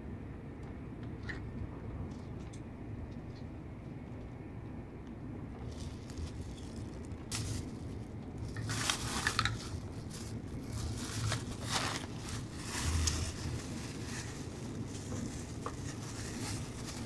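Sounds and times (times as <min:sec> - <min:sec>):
train cabin low rumble: 0:00.0 - 0:17.0
plastic bag crinkling: 0:05.6 - 0:17.0.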